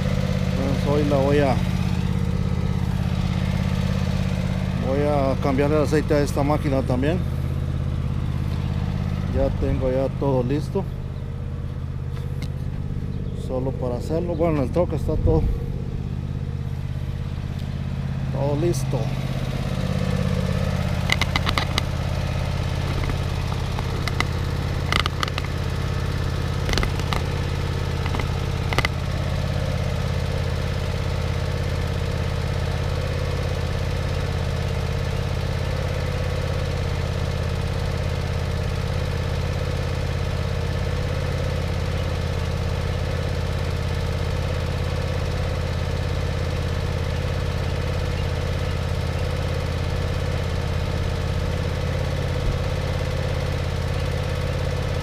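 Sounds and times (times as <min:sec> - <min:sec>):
engine idling: 0:00.0 - 0:55.0
sharp knocks: 0:21.0 - 0:21.9, 0:22.8 - 0:25.6, 0:26.6 - 0:27.4, 0:28.0 - 0:29.0.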